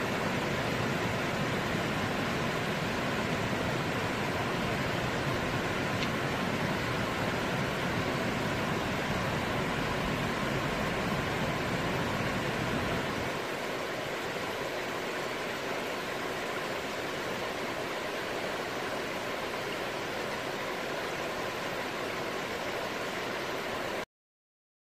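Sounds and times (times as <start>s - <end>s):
river water rushing over rocks: 0.0s - 24.0s.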